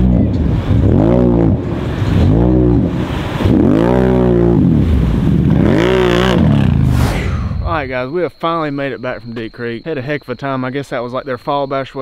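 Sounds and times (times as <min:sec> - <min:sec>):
vehicle engine revving: 0:00.0 - 0:07.7.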